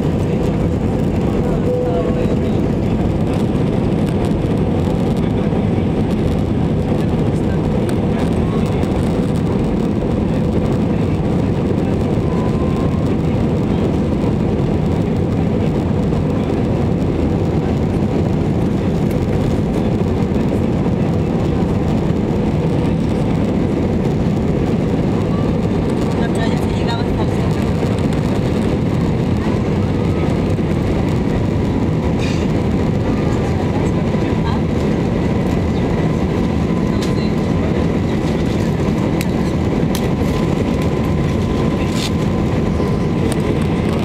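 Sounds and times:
jet engines and rushing air: 0:00.0 - 0:44.0.

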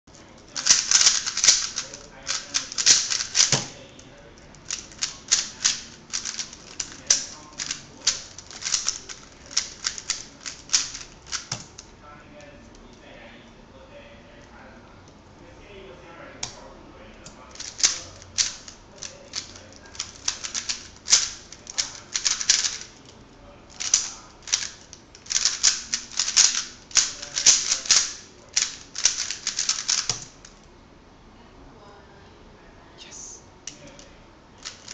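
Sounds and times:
plastic puzzle cube clicking: 0:00.6 - 0:03.7, 0:04.6 - 0:11.8, 0:17.5 - 0:22.9, 0:23.8 - 0:30.3.

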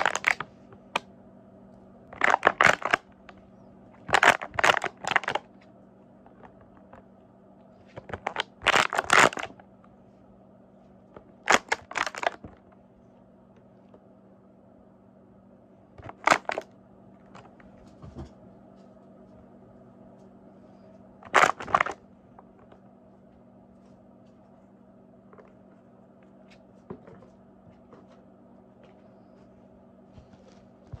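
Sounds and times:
plastic bottles crinkling: 0:00.0 - 0:01.0, 0:02.2 - 0:03.4, 0:04.0 - 0:05.6, 0:07.9 - 0:09.6, 0:11.4 - 0:12.6, 0:16.0 - 0:16.7, 0:21.2 - 0:22.0
faint low hum: 0:00.0 - 0:31.0.

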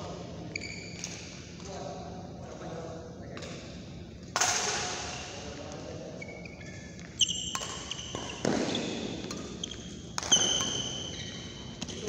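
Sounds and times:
racket hitting shuttlecock: 0:07.5 - 0:11.1.

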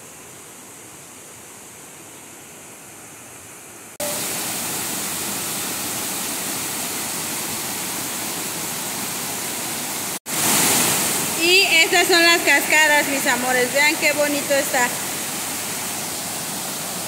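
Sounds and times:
waterfall rushing over rocks: 0:04.0 - 0:17.0.

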